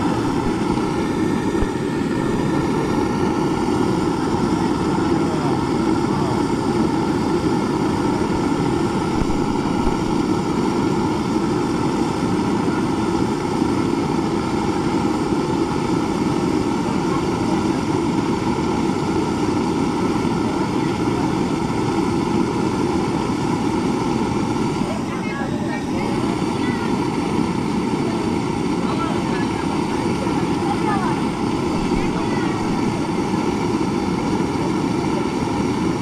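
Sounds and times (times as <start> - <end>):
loud mechanical drone: 0.0 - 36.0.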